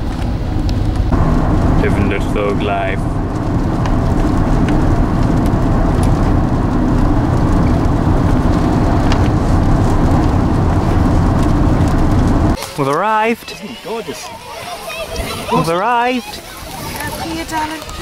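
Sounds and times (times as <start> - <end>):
car road and engine noise: 0.0 - 14.3.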